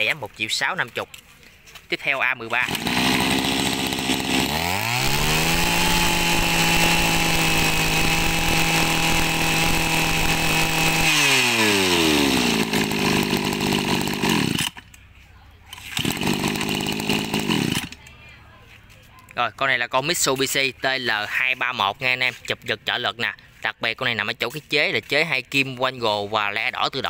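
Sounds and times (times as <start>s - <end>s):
brush cutter engine revving: 1.9s - 18.3s.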